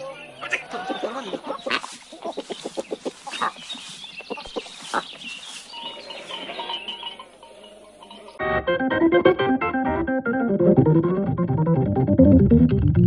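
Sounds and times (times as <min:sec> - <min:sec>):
chickens clucking and squawking: 0:00.0 - 0:08.4
farm animal noise: 0:00.0 - 0:08.4.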